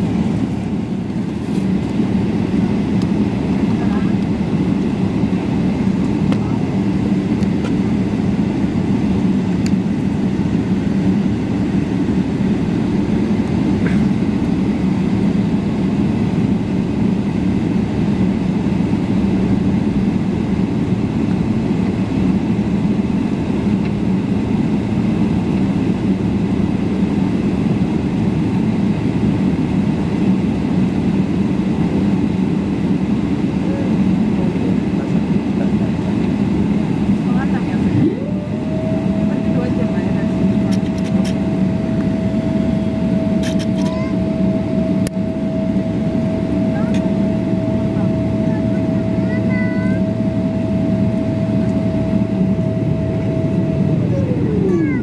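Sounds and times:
jet engines drone in cabin: 0.0 - 55.0.

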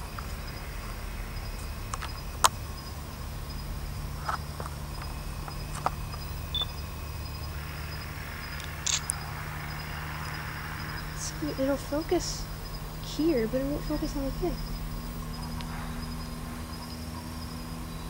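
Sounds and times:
faint insect drone: 0.0 - 18.0
low hum: 0.0 - 18.0
camera handling clicks: 8.6 - 9.2.

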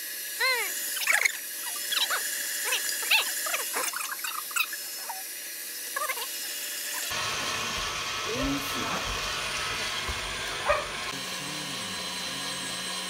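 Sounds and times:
stand mixer whisking: 0.0 - 13.0
animal squeaky whines: 0.4 - 5.3.

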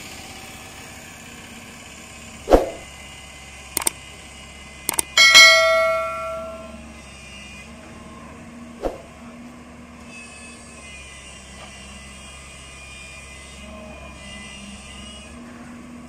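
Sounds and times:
excavator diesel engine running: 0.0 - 16.0
sharp click: 4.9 - 6.7.

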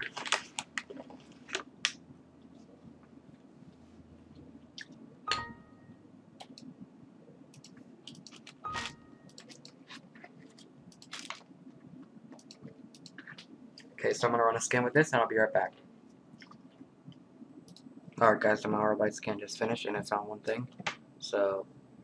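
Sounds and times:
low steady hum: 0.0 - 22.0
computer mouse clicks: 6.4 - 6.7, 7.5 - 9.8, 12.3 - 13.9, 16.4 - 17.9.

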